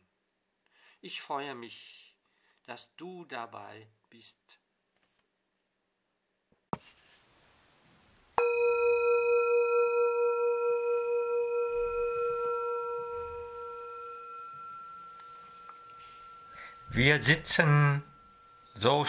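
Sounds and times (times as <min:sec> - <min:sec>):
singing bowl ringing: 0:08.4 - 0:19.0.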